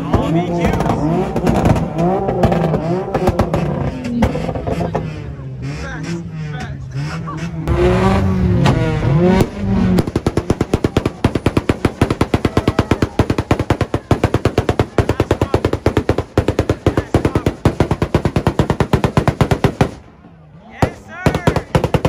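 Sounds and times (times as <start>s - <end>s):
loud crowd voices: 0.0s - 22.0s
rapid string of sharp bangs: 9.4s - 20.1s, 20.8s - 22.0s.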